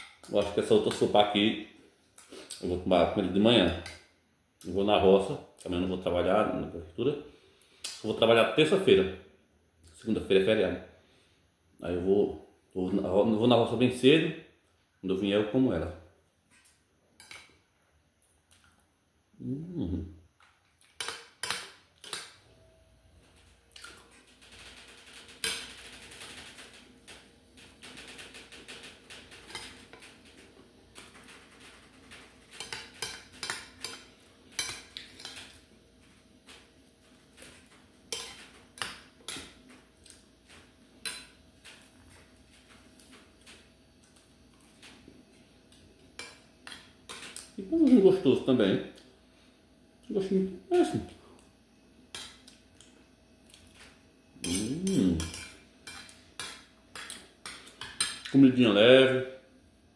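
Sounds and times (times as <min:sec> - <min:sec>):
person humming: 0:19.4 - 0:20.1, 0:54.5 - 0:55.3.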